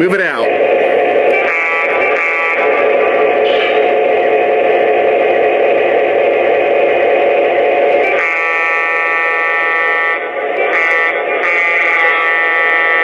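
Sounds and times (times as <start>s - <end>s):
locomotive horn blast: 0.9s - 3.9s, 8.0s - 13.0s.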